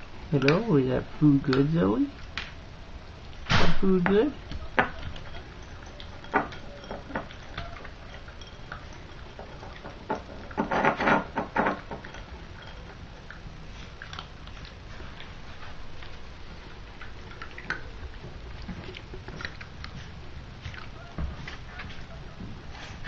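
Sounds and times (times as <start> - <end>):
puppy chewing and smacking: 0.2 - 23.0
kibble knocking against bowl: 9.2 - 12.7.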